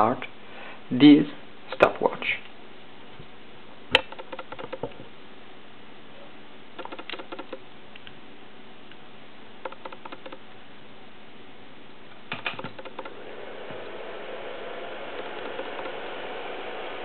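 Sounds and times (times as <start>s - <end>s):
laptop fan whirring: 3.9s - 5.1s, 6.7s - 8.2s, 9.6s - 10.6s, 12.2s - 17.0s.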